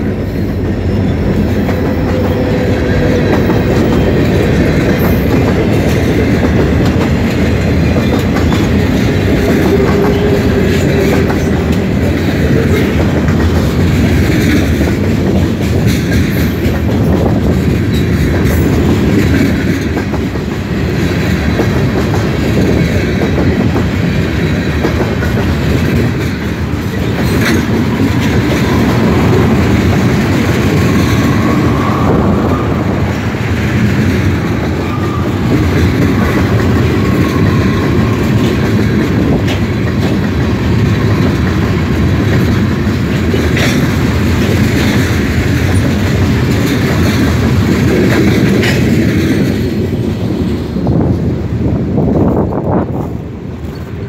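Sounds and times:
freight train wheels on rails: 0:00.0 - 0:54.0.

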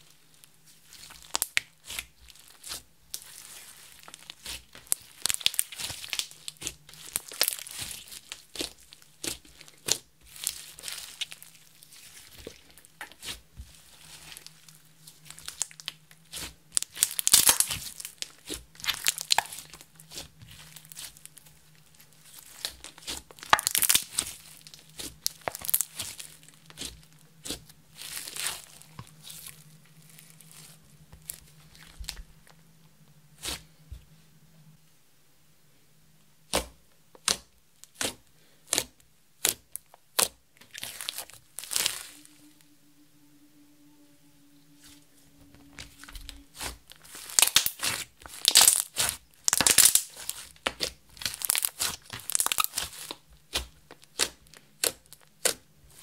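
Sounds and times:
slime crackling and tearing: 0:00.1 - 0:32.2, 0:36.5 - 0:42.5, 0:45.4 - 0:56.0
slime popping: 0:22.4 - 0:29.5, 0:46.5 - 0:55.6.

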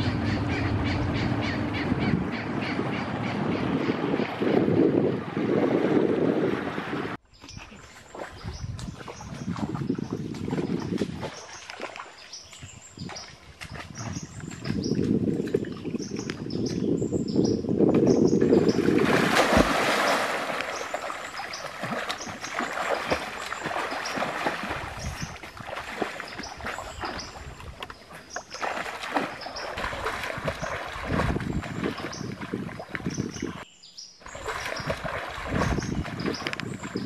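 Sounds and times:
swimming splashes: 0:00.0 - 0:15.9, 0:18.5 - 0:33.6, 0:34.2 - 0:37.0
water splash of person plunging: 0:18.8 - 0:27.2, 0:28.6 - 0:33.1.

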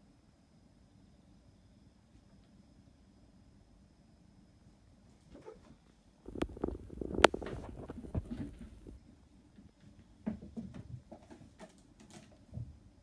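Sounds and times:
cat claws scratching carpet: 0:06.3 - 0:09.0
cat paws thumping: 0:06.3 - 0:09.0.

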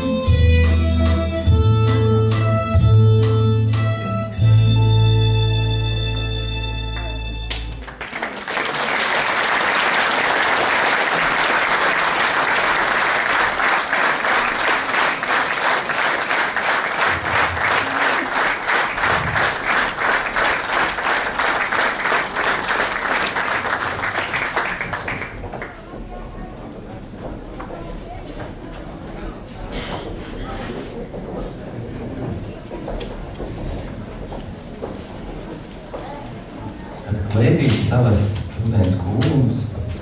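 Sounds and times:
rhythmic clapping in unison: 0:06.9 - 0:26.0
audience applauding: 0:06.9 - 0:26.1.

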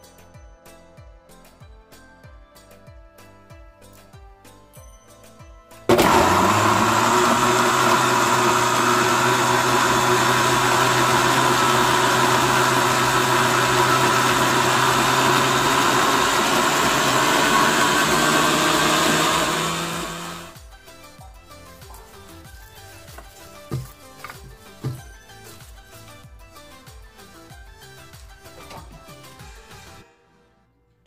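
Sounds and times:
electric blender motor running: 0:05.9 - 0:20.6.

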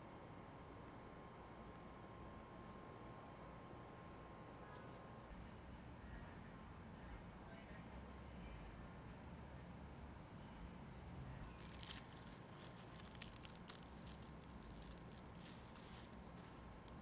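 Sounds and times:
paper wrapper crinkling: 0:11.4 - 0:17.0.

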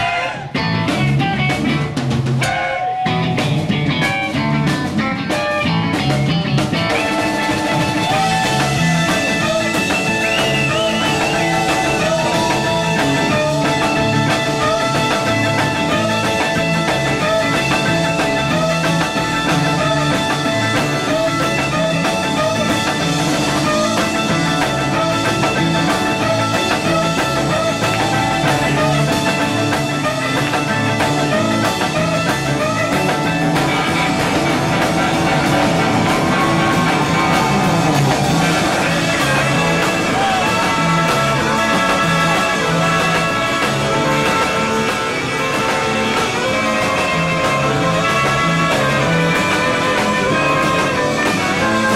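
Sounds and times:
live surf rock band: 0:00.0 - 0:51.9.

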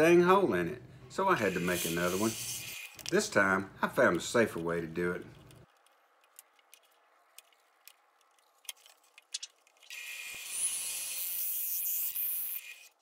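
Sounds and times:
drill press high-pitched whir: 0:09.9 - 0:13.0.

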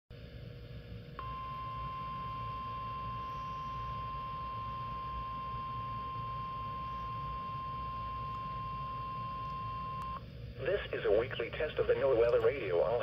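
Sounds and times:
steady high alarm tone: 0:01.2 - 0:10.2.

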